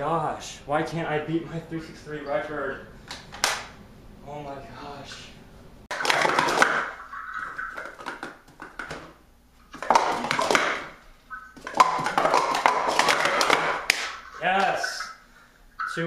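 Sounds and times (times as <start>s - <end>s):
plastic cups clattering: 5.9s - 15.1s.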